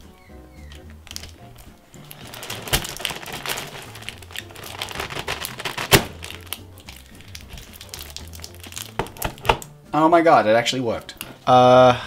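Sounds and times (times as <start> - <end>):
background music: 0.0 - 12.0
sharp plastic snaps: 4.1 - 9.8.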